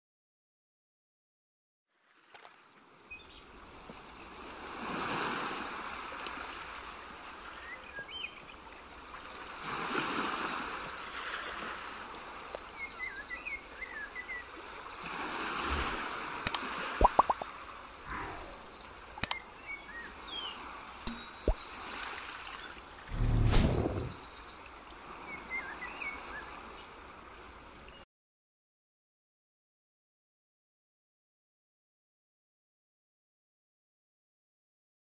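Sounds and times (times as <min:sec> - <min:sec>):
water washing in swells: 0:08.6 - 0:12.0, 0:14.3 - 0:19.2, 0:20.0 - 0:27.9
birds chirping and trilling: 0:18.1 - 0:24.7.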